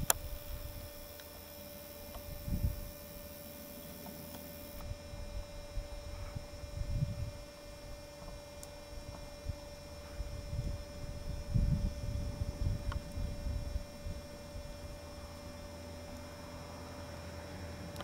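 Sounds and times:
wind rumble on microphone: 0:00.0 - 0:01.1, 0:02.0 - 0:03.1, 0:04.8 - 0:15.8
electrical hum: 0:00.0 - 0:18.0.

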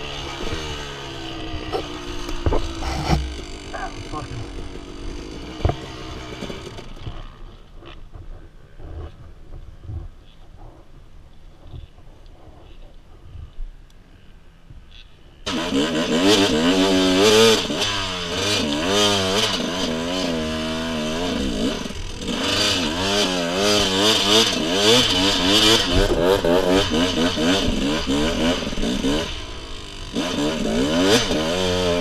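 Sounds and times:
dirt bike engine revving: 0:00.0 - 0:08.1, 0:15.4 - 0:32.0.

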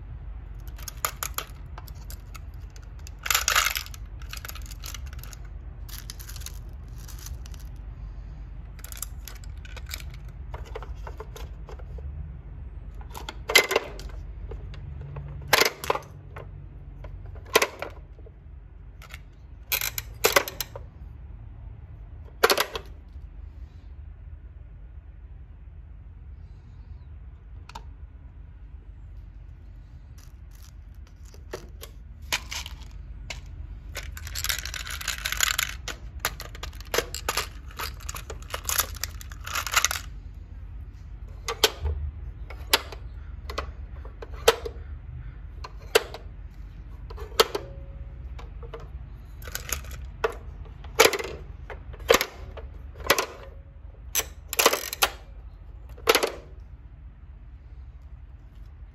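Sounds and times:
toy rattle: 0:00.5 - 0:07.8, 0:08.7 - 0:12.0, 0:30.1 - 0:40.3, 0:48.4 - 0:52.6.

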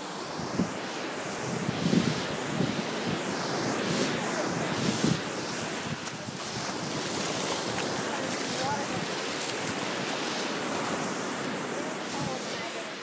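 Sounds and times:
shallow surf washing: 0:00.0 - 0:13.0
wind buffeting microphone: 0:00.3 - 0:12.9
feet wading through water: 0:04.2 - 0:13.0.

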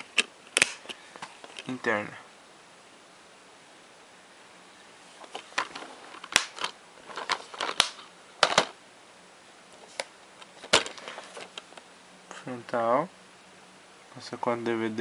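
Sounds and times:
plastic case clicks and clacks: 0:05.3 - 0:08.8.

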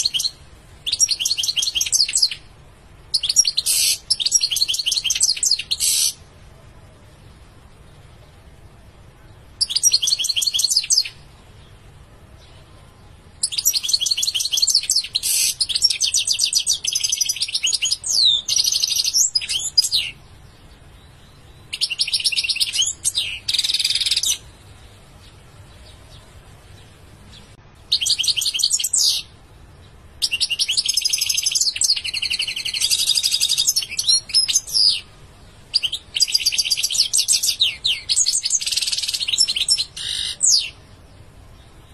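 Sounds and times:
goldfinch trilling song: 0:00.0 - 0:02.5, 0:03.1 - 0:06.2, 0:09.6 - 0:11.3, 0:13.4 - 0:24.5, 0:27.3 - 0:29.4, 0:30.2 - 0:35.1, 0:35.7 - 0:40.8.

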